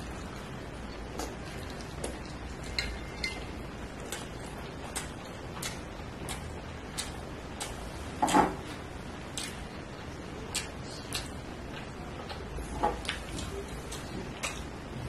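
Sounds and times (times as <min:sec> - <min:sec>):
person chewing: 0:00.0 - 0:09.8, 0:10.4 - 0:14.8
wet mouth clicks: 0:04.9 - 0:07.8, 0:09.3 - 0:09.6, 0:10.5 - 0:11.4.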